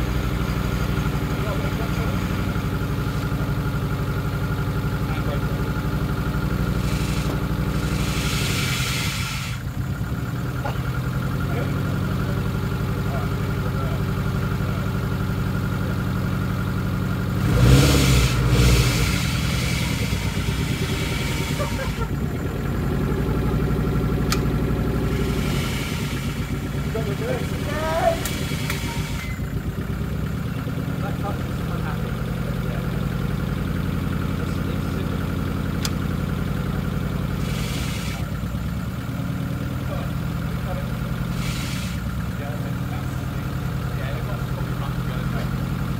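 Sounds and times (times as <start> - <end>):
car engine idling: 0.0 - 45.9
engine revving: 0.0 - 45.9
sharp click: 24.2 - 24.5, 35.8 - 36.0.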